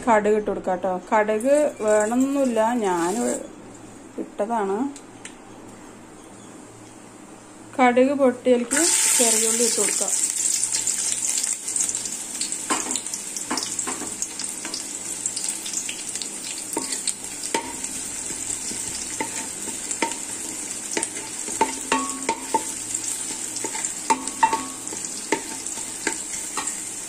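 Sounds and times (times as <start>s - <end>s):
vegetables sizzling in oil: 1.4s - 3.4s, 8.7s - 27.0s
wooden spoon scraping a pan: 18.7s - 27.0s.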